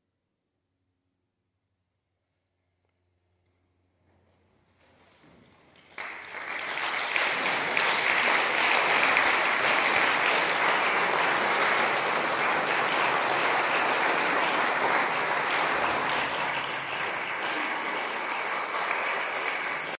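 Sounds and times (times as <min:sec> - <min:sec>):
audience applauding: 0:05.6 - 0:20.0.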